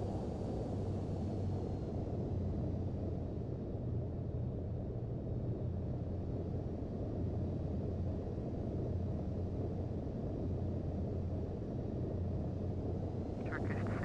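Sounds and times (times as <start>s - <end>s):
airplane cabin rumble: 13.4s - 14.0s.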